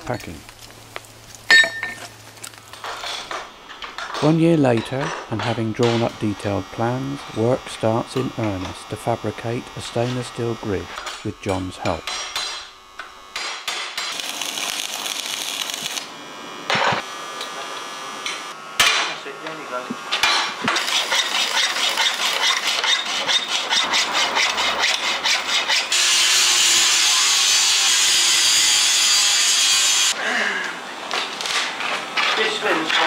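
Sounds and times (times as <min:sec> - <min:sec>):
angle grinder cutting metal: 0:02.8 - 0:30.2
rhythmic scraping strokes: 0:04.2 - 0:12.9, 0:20.6 - 0:26.0.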